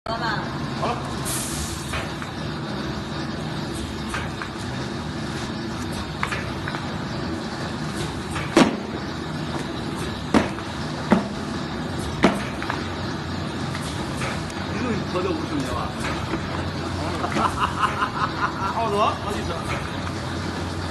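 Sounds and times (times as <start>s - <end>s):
laminating machine humming: 0.1s - 20.9s
sharp knocks: 10.3s - 11.4s, 12.2s - 12.8s.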